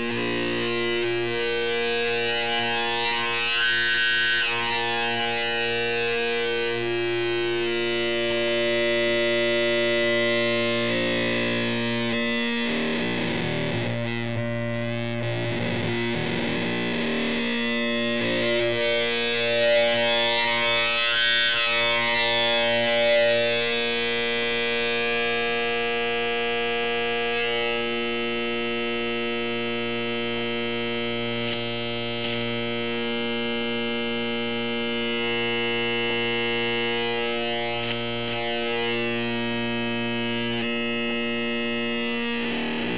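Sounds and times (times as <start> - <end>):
buzzy synthesizer tone: 0.0 - 25.0.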